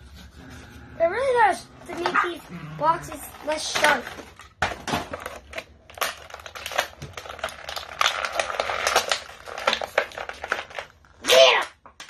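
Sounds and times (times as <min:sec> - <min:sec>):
plastic packaging clicks and crinkles: 0:03.1 - 0:11.2.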